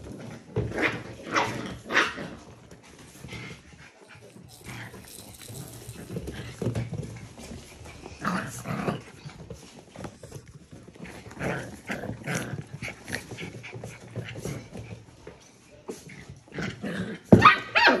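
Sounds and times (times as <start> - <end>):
puppies scuffling: 0.0 - 16.8
puppies growling and squeaking: 3.2 - 14.7.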